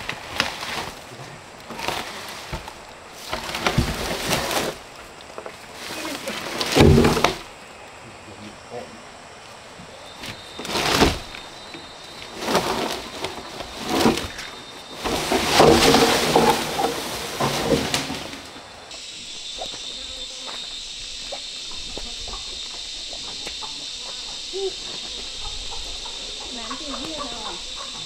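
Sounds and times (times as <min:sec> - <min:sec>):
wooden plank scraping through leaves: 0:00.0 - 0:07.6, 0:10.1 - 0:19.9
high insect drone: 0:00.0 - 0:28.0.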